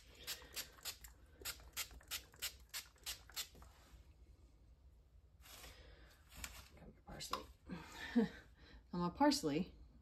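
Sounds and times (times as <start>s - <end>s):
spray bottle spritzing: 0.0s - 3.7s.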